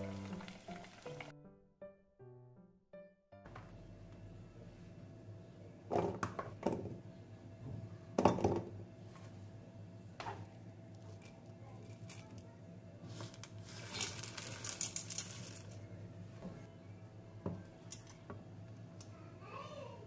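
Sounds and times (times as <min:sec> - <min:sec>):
grains rattling into steel jar: 0:13.6 - 0:15.8.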